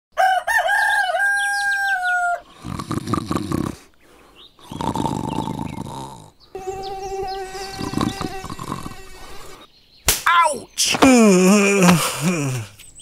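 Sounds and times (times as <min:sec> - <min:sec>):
rooster crowing: 0:00.2 - 0:02.4
person snoring: 0:02.6 - 0:03.9, 0:04.6 - 0:06.4, 0:07.7 - 0:09.7.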